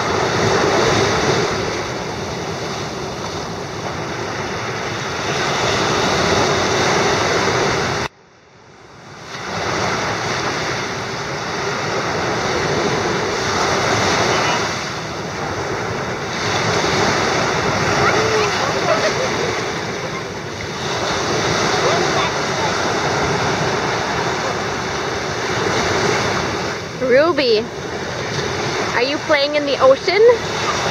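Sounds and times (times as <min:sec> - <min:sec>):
waves washing up a beach: 0:00.0 - 0:30.9.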